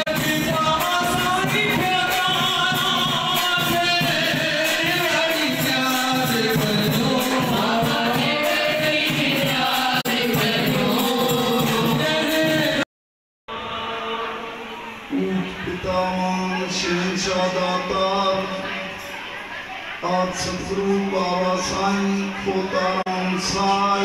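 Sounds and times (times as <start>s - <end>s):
group singing a hymn: 0.0s - 12.9s, 13.5s - 24.0s
rhythmic percussion: 0.0s - 12.9s.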